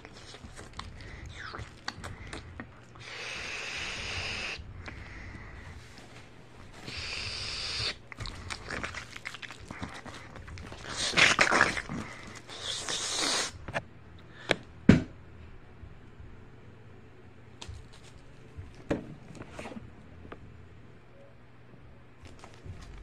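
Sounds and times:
breathy hissing and rustling: 0:00.0 - 0:13.8.

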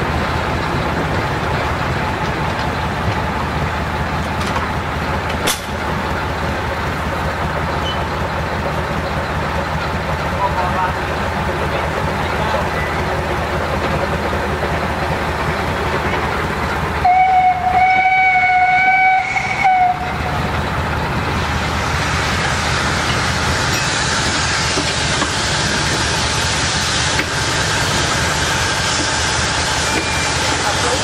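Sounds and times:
steam engine hiss and rumble: 0:00.0 - 0:31.0
steam locomotive whistle: 0:17.0 - 0:20.4.

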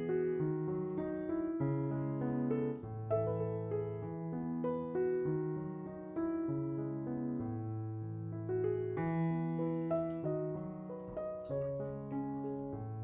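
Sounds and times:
gentle solo piano music: 0:00.0 - 0:13.0.

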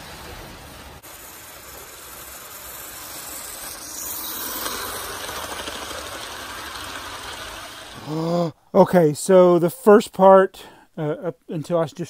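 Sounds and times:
model train wheels and motor whirring: 0:00.0 - 0:08.5.

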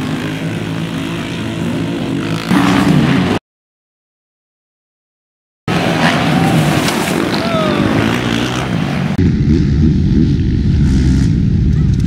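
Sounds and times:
quad engine revving hard: 0:05.8 - 0:11.7.

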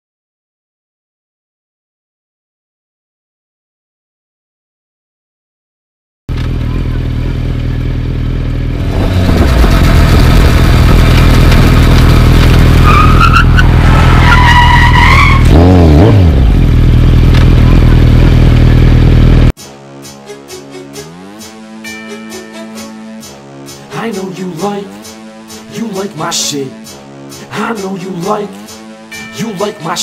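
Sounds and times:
tires squealing: 0:08.9 - 0:16.4
engine revving past: 0:15.4 - 0:18.5
highway traffic passing: 0:20.6 - 0:29.4.

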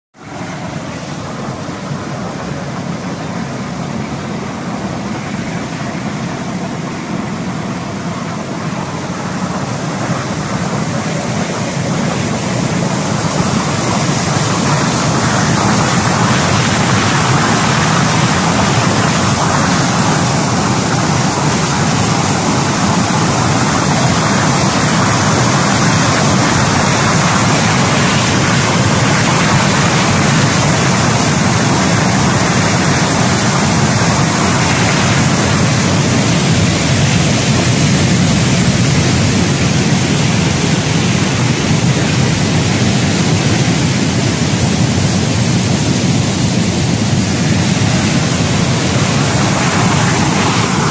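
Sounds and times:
water churning in machine tank: 0:00.2 - 0:50.9.

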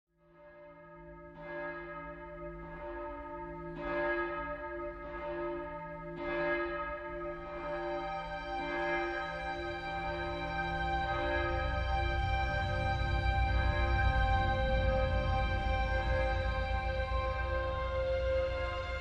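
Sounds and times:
large bell tolling: 0:05.6 - 0:19.0.

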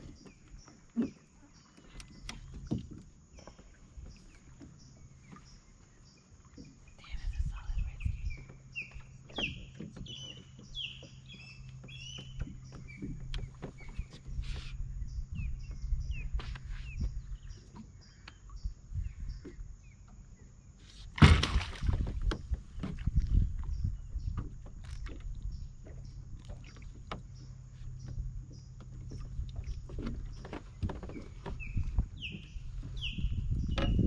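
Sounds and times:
knocks and rumble of handling: 0:00.0 - 0:20.3, 0:20.9 - 0:34.0
birds chirping: 0:00.0 - 0:20.9, 0:22.6 - 0:34.0
fish splashing in net: 0:21.2 - 0:22.1.

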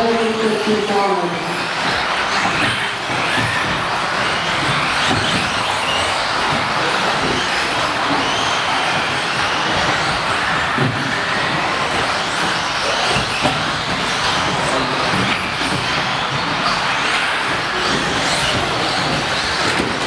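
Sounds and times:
echoing hall din: 0:00.0 - 0:20.0
electric toy car motors whining: 0:00.1 - 0:20.0.

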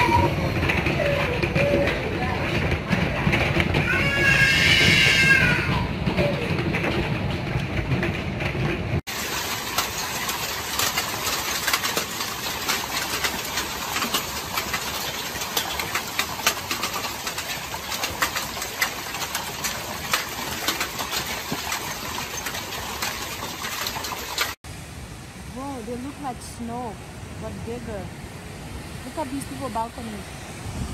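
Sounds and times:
hail splashing into pool: 0:00.0 - 0:07.1, 0:09.0 - 0:24.6
hail on a yard: 0:00.0 - 0:24.6.

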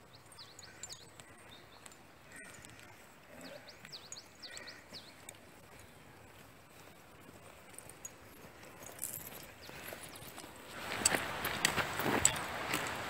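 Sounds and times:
small bird chirping: 0:00.0 - 0:06.4.

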